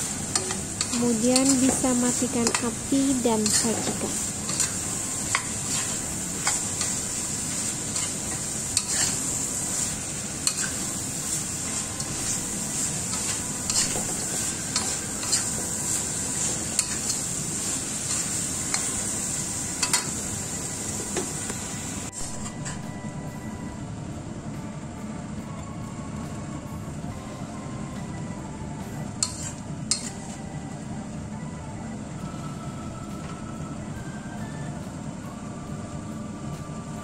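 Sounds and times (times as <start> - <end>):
food sizzling in oil: 0.0 - 22.9, 29.2 - 30.4
metal spatula scraping wok: 3.4 - 19.0, 29.2 - 30.2.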